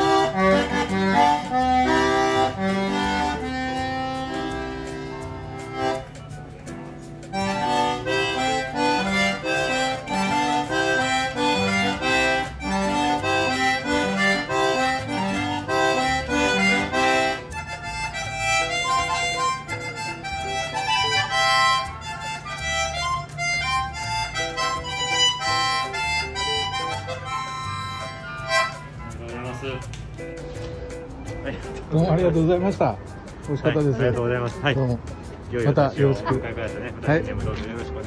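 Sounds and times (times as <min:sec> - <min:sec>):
concertina tune: 0:00.0 - 0:33.4.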